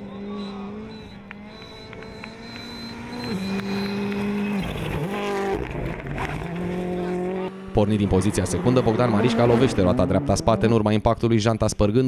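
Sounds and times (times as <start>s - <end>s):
rally car engine revving: 0.0s - 11.5s
sharp ticks: 1.2s - 4.6s.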